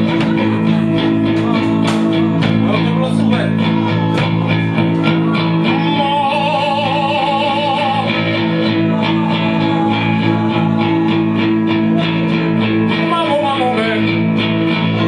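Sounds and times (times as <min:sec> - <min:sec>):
steady drum hits: 0:00.0 - 0:03.0
low bass guitar notes: 0:00.0 - 0:15.0
wavering electric guitar note: 0:00.0 - 0:15.0.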